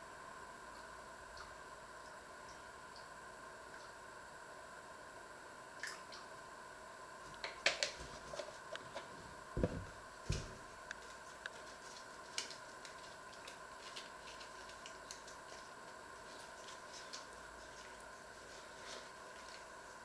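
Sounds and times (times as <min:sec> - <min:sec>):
faint steady hum: 0:00.0 - 0:20.0
soft knocks: 0:09.6 - 0:10.6.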